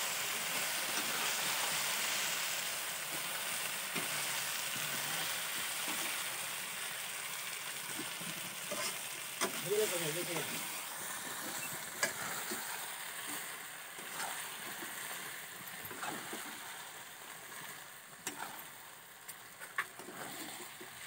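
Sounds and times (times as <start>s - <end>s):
chicken sizzling in a pan: 0.0s - 21.0s
wooden spatula scraping a pan: 7.9s - 15.2s.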